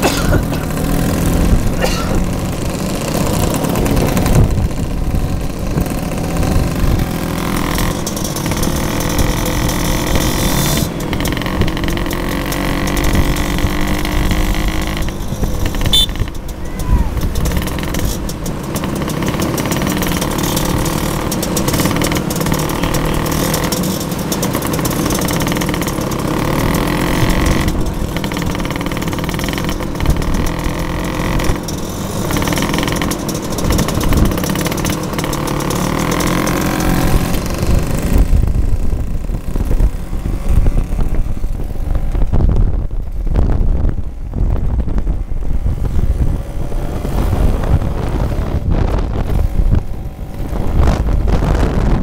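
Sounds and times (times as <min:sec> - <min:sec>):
motor scooter engines: 0:00.0 - 0:52.0
wind buffeting microphone: 0:03.1 - 0:07.4, 0:37.1 - 0:52.0.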